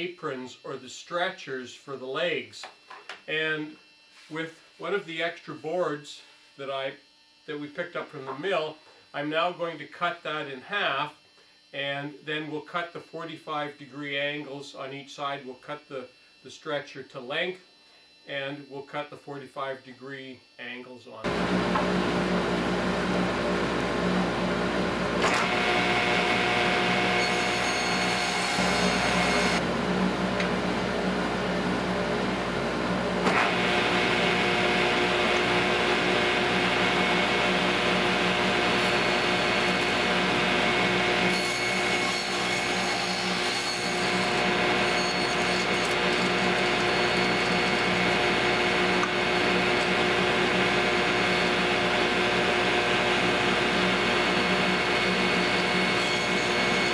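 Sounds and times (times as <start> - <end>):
table saw cutting boards: 2.6 - 11.0, 21.2 - 56.9.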